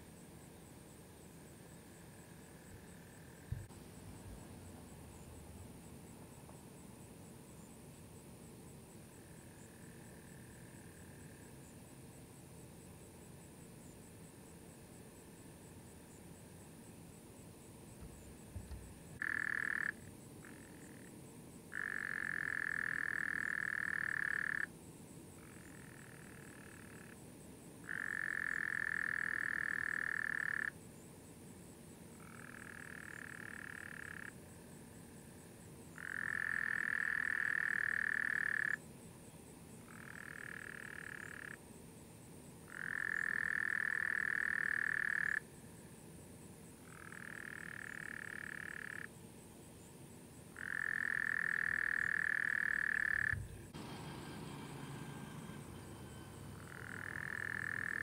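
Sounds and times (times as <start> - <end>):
brief low thump: 18.0 - 19.0
frogs trilling: 18.0 - 24.7, 25.3 - 27.2, 27.8 - 30.8, 32.1 - 38.8, 39.8 - 41.6, 42.6 - 45.6, 46.7 - 49.1, 50.4 - 53.7, 55.6 - 58.0.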